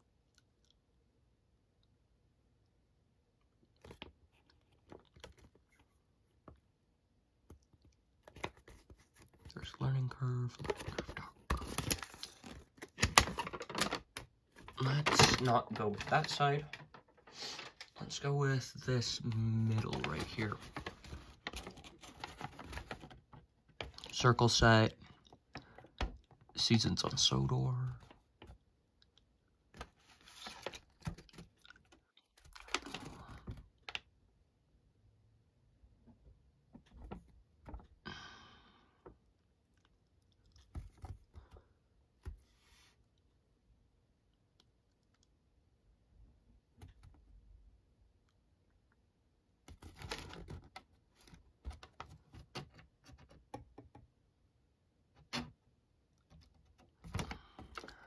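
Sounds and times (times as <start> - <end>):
paper crackles: 10.5 - 18.2, 19.0 - 24.6, 29.8 - 34.0
paper pamphlet rustling: 19.0 - 23.2, 29.8 - 31.5.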